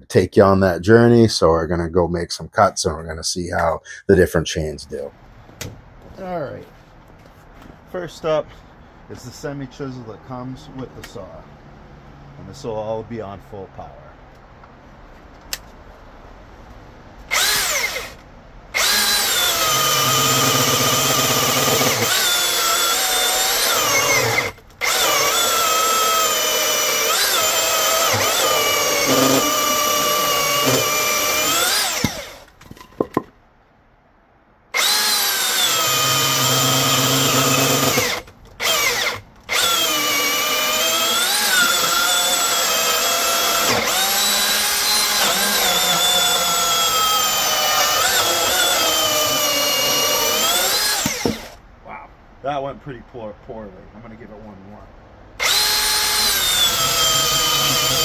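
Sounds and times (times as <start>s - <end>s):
chainsaw cutting wood: 17.3s - 32.5s, 34.7s - 51.6s, 55.4s - 58.0s.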